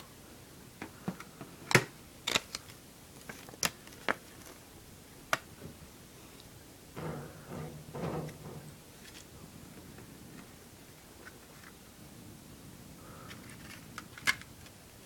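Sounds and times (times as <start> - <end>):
paper rustle: 2.3 - 4.7.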